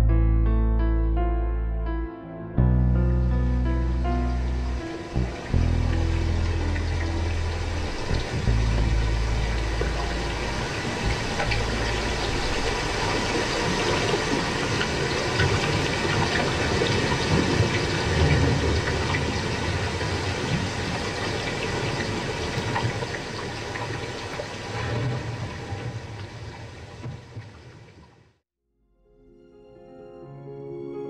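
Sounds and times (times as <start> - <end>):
low rumble: 2.6 - 27.0
dense rushing noise: 3.9 - 26.7.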